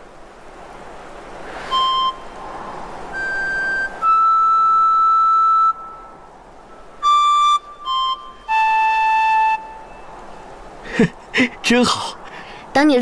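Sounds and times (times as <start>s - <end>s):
bamboo flute notes: 1.6s - 2.5s, 3.1s - 10.5s.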